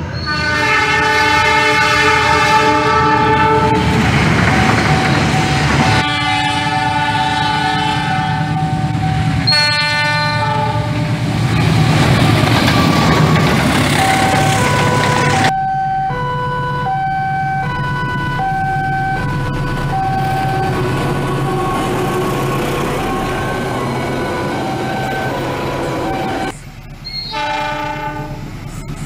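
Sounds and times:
locomotive rumble and wheel noise: 0.0s - 29.0s
locomotive horn blasts: 0.2s - 4.0s, 5.8s - 11.3s, 27.3s - 28.5s.

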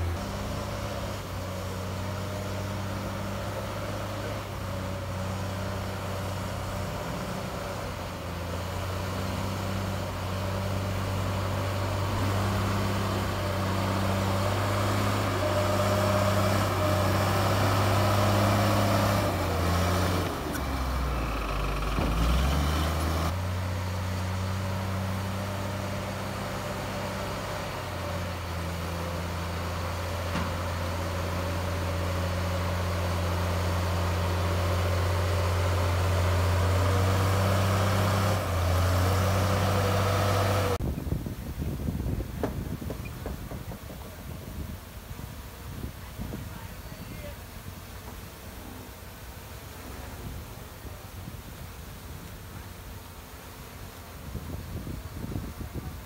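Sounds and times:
bulldozer diesel engine running: 0.0s - 40.8s.

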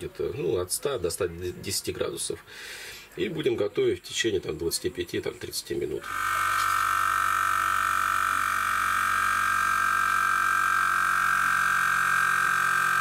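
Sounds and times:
air compressor whining: 6.0s - 13.0s.

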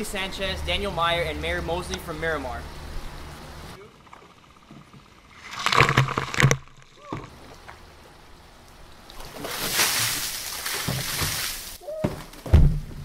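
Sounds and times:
water splashing from buckets: 3.0s - 11.8s.

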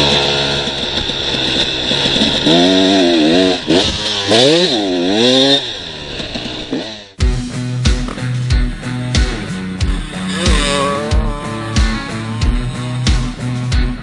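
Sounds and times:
motorcycle engine revving: 0.0s - 14.0s
guitar music: 7.2s - 14.0s.

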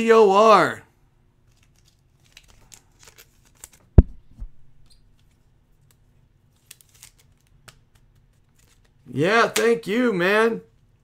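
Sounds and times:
cards and packaging rustling: 1.4s - 4.1s, 5.1s - 9.8s.

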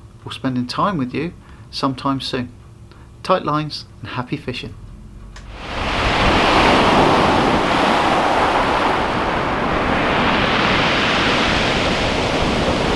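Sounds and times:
surf on a shingle beach: 5.5s - 12.9s.

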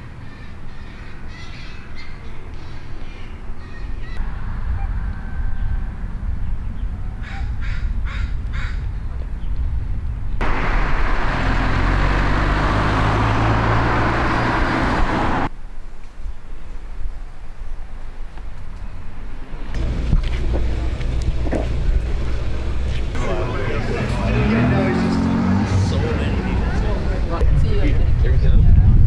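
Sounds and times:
bird calls: 0.0s - 4.2s
outdoor low rumble: 19.7s - 29.0s.

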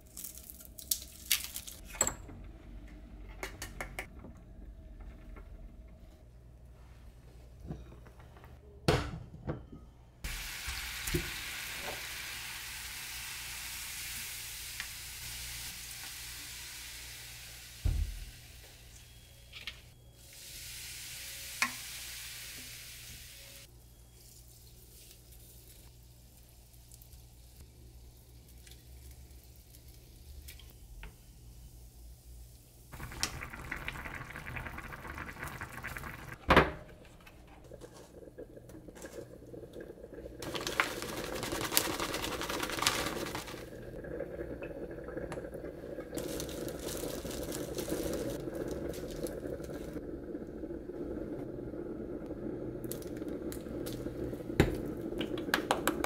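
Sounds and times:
food sizzling in frying pan: 10.3s - 18.9s, 20.3s - 23.7s, 32.9s - 36.4s, 40.4s - 43.7s, 46.2s - 50.0s.

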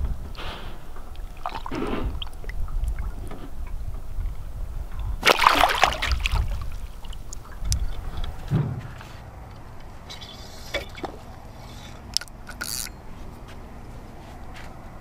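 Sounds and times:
water sloshing and splashing: 1.0s - 12.8s
loud water splash: 5.2s - 6.8s.

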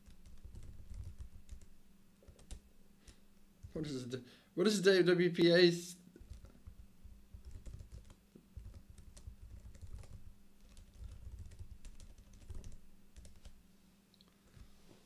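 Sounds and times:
laptop keyboard typing: 0.0s - 3.8s, 6.2s - 13.6s.

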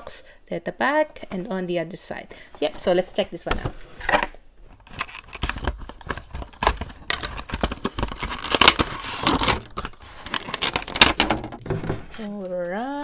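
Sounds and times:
plastic crinkling and rustling: 4.7s - 12.6s.

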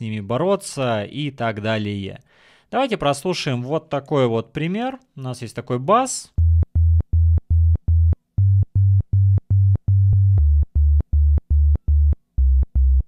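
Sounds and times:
synth bass low notes: 6.4s - 13.0s.

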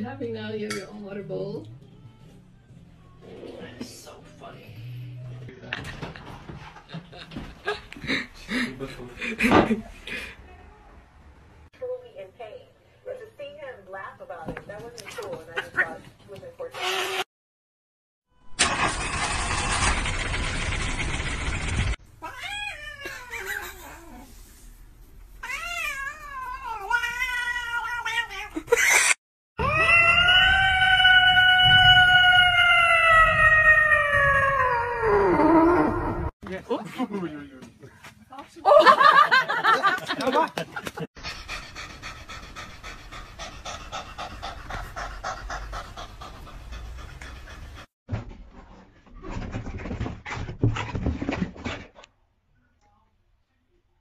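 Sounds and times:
cat yowling: 22.2s - 24.2s, 25.4s - 28.6s, 29.6s - 36.3s
second cat yowling: 29.6s - 36.1s
cat panting: 41.2s - 47.9s.

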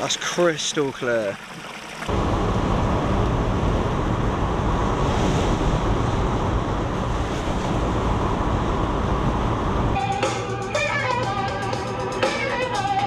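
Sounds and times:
tyres on wet road: 0.0s - 10.0s
rain on windscreen: 2.1s - 10.0s.

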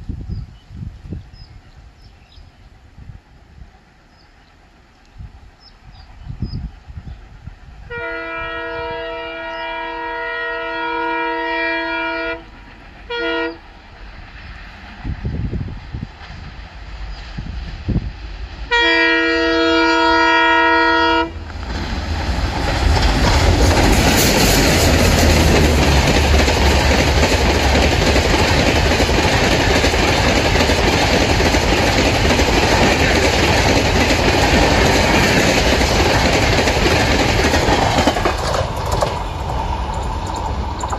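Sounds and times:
diesel locomotive engine rumble: 0.0s - 40.9s
train horn: 7.8s - 13.6s, 18.7s - 21.4s
wheel-on-rail noise: 21.3s - 40.9s.

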